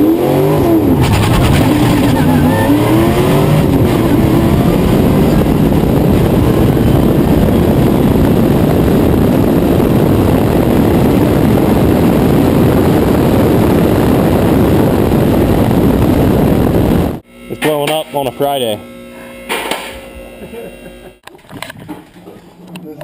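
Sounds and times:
car engine at speed: 0.0 - 17.2
wind rushing: 0.0 - 17.2.

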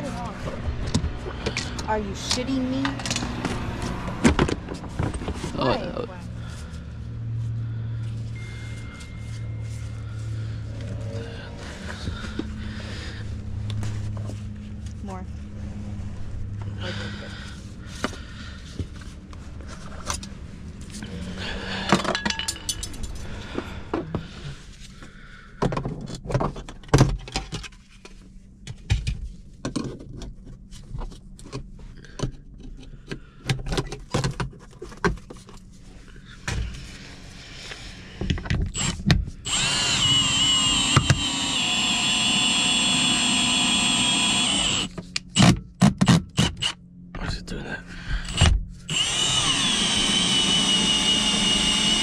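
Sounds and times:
clicks and knocks of tools: 0.9 - 3.6
power tool motor whine: 38.7 - 45.5, 48.3 - 52.0.

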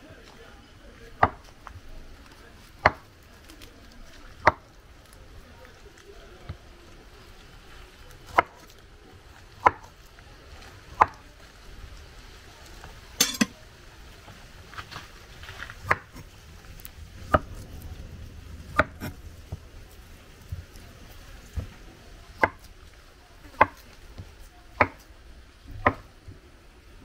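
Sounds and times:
knife knocking on cutting board: 13.2 - 13.5.

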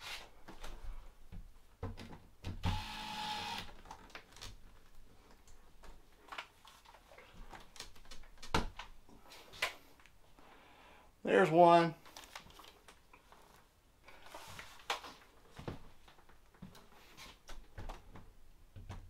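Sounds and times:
cordless drill running: 2.6 - 3.7.

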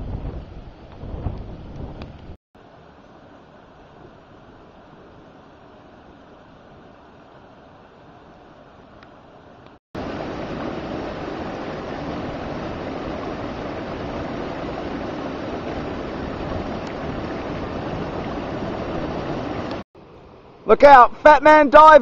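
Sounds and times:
water rushing over weir: 2.6 - 19.8.

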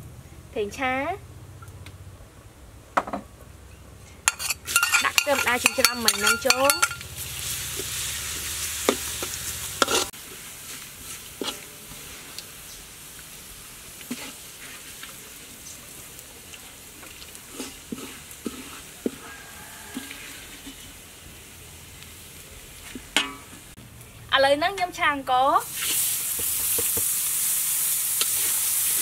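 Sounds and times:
metal ladle clicking on wok: 4.3 - 7.1
garlic sizzling in oil: 4.3 - 23.8, 25.2 - 29.0.

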